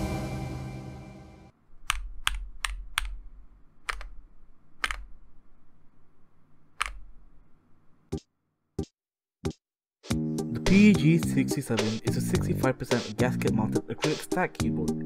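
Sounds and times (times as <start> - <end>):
mechanical keyboard keystrokes: 1.8 - 3.2, 3.8 - 4.2, 4.8 - 5.2, 6.8 - 7.1.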